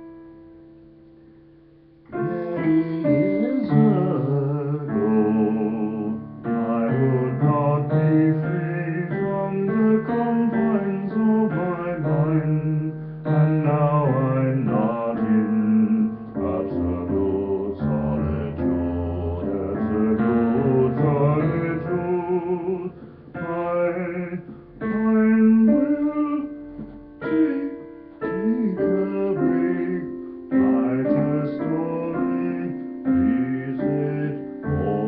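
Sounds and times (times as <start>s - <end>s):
digital keyboard chords and melody: 24.3s - 35.0s.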